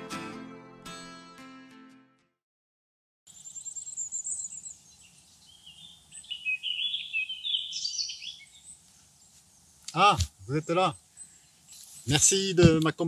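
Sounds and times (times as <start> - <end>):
birds singing: 3.3 - 13.0.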